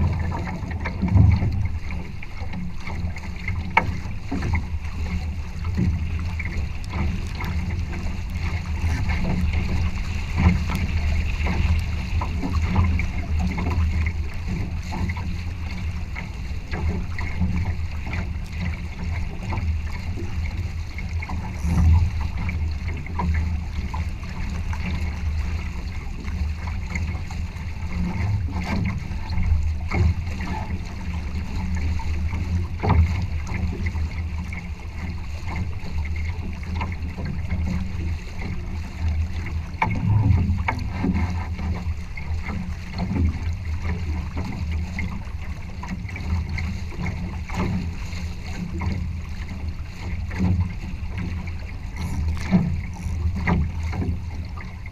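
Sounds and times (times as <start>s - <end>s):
low rumble of wind: 0.0s - 54.9s
water rushing along a boat hull: 0.0s - 54.9s
water splashes: 0.0s - 54.9s.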